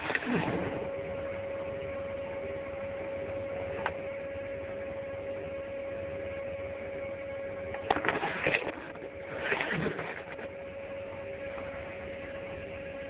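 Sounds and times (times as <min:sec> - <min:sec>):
irregular crackling burst: 0:00.0 - 0:01.3, 0:07.7 - 0:12.4
electrical hum: 0:00.0 - 0:13.0.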